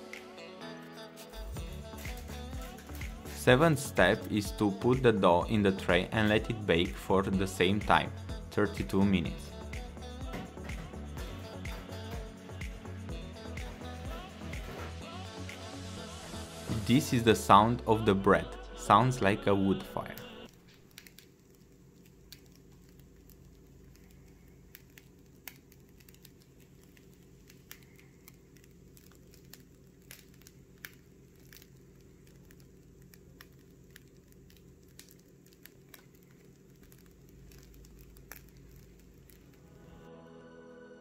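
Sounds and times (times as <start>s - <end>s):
steady low hum: 1.4s - 40.2s
bread crust crackling: 20.0s - 40.0s.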